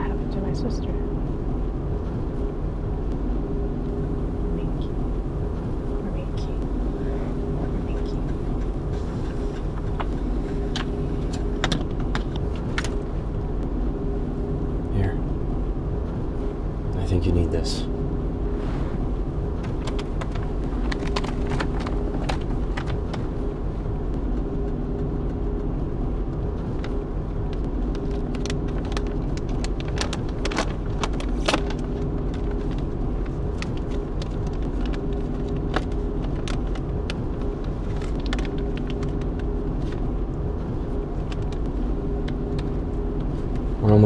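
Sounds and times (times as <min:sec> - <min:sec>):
car cabin drone: 0:00.0 - 0:44.0
small clicks and rustles: 0:26.6 - 0:43.7.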